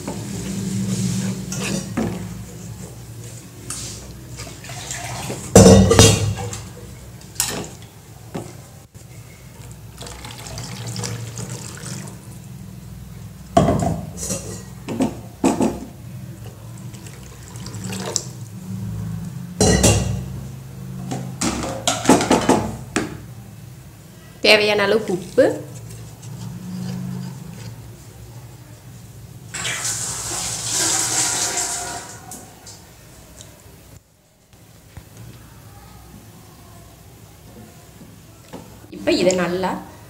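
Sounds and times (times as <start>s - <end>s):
spatula scraping and knocking pan: 0.0s - 3.0s.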